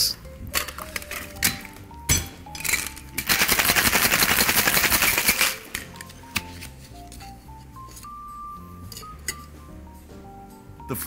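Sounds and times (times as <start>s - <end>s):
ice rattling in cocktail shaker: 2.6s - 5.7s.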